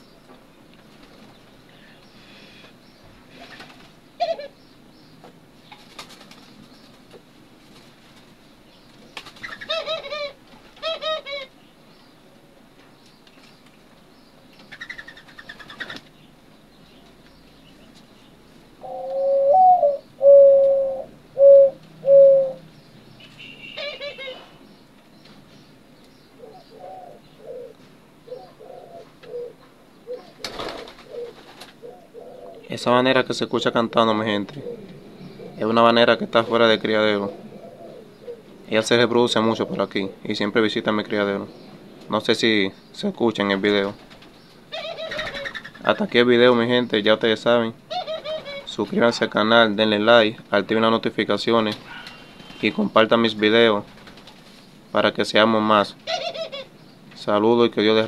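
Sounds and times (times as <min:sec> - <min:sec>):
doves calling: 0:00.0 - 0:58.0
dove cooing: 0:03.3 - 0:04.6, 0:09.4 - 0:11.5, 0:18.8 - 0:22.7, 0:23.7 - 0:24.6, 0:26.4 - 0:40.4, 0:44.7 - 0:45.8, 0:47.9 - 0:48.7, 0:56.0 - 0:56.8.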